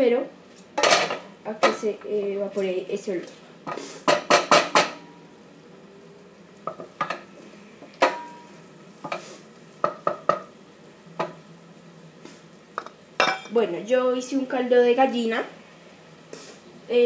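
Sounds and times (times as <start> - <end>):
rice sizzling: 0.0 - 17.0
wooden spoon knocking metal pot: 4.1 - 5.0, 9.8 - 10.5.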